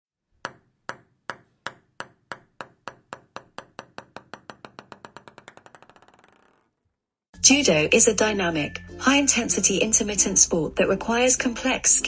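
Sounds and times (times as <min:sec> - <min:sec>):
small ball bouncing: 0:00.4 - 0:07.0.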